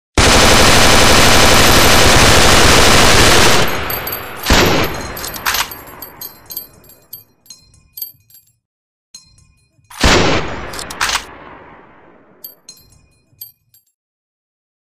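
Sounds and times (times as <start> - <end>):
machine gun automatic burst: 0.2 - 5.7
loud gunshots: 0.2 - 5.9, 10.0 - 12.2
metallic clinks of casings: 3.6 - 8.6, 9.2 - 10.0, 12.4 - 14.0.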